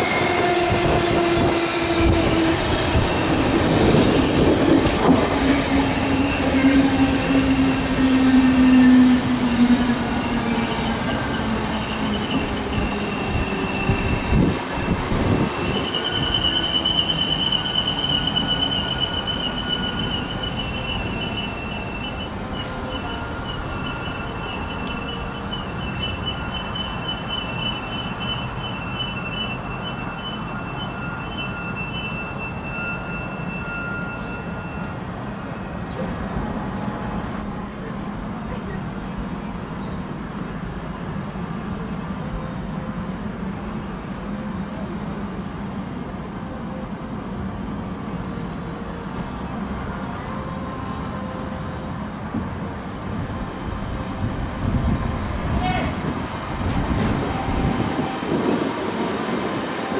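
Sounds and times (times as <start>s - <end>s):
train wheels squealing on rails: 0.0s - 36.1s, 37.8s - 40.6s, 44.0s - 45.7s, 48.1s - 52.4s, 56.7s - 59.9s
train running rumble: 35.1s - 59.9s.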